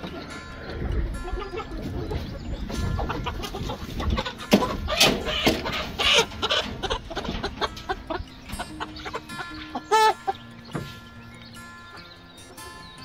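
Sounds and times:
chickens clucking: 0.0 - 13.0.

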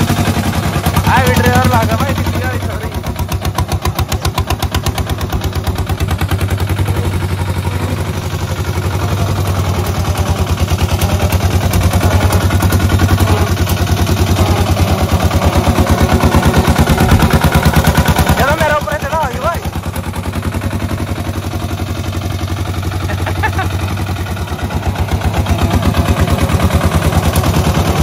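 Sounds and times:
tractor engine exhaust beats: 0.0 - 28.0.

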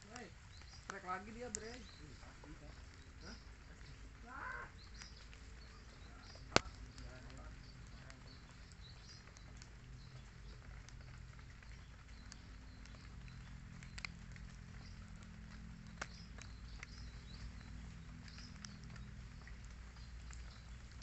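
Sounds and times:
faint high bird chirps: 0.1 - 15.1.

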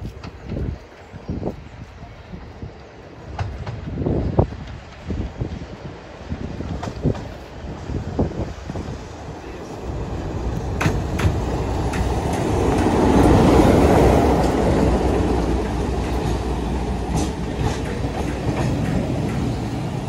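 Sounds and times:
train wheels clicking over rail joints: 0.0 - 1.0, 2.8 - 5.7, 6.5 - 7.6, 10.0 - 20.0
diesel locomotive engine passing: 0.2 - 20.0.

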